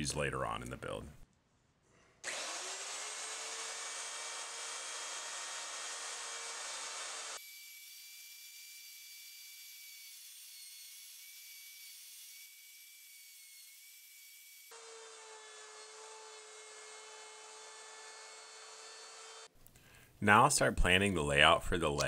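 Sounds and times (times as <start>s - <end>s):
router high-pitched whine: 2.3s - 17.8s.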